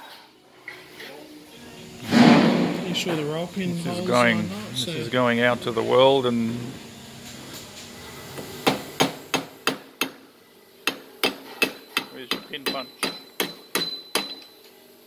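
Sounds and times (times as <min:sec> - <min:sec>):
hammer tapping on metal: 0:10.8 - 0:14.5.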